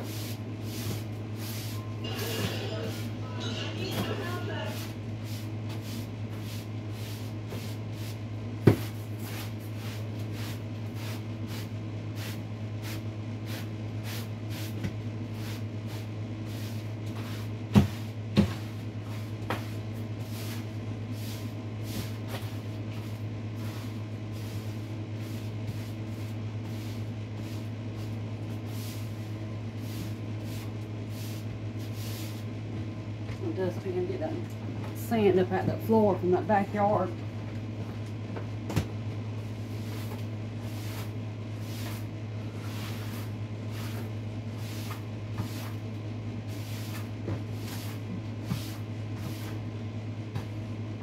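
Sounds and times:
broom sweeping floor: 0.0 - 32.5, 39.3 - 50.7.

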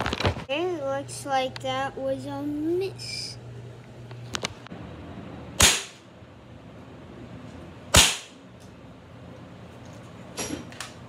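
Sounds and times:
bb gun shots: 5.6 - 6.0, 7.9 - 8.4.

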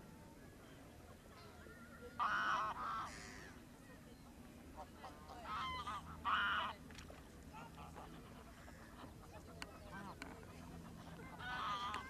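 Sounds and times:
geese honking: 2.2 - 3.5, 5.0 - 6.7, 7.6 - 12.0.

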